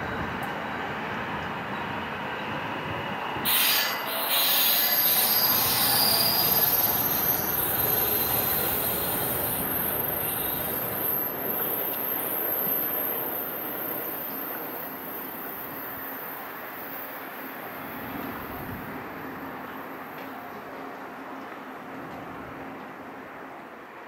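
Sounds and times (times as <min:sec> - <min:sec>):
electric train moving: 0:00.0 - 0:23.5
high-pitched wheel squeal: 0:03.5 - 0:14.5.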